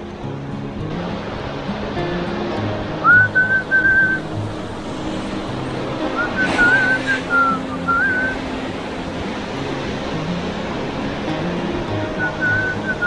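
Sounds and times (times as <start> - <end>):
soft background music: 0.0 - 13.0
person whistling a tune: 3.0 - 4.2, 6.2 - 8.4, 12.2 - 13.0
brief rush of noise: 3.2 - 8.8.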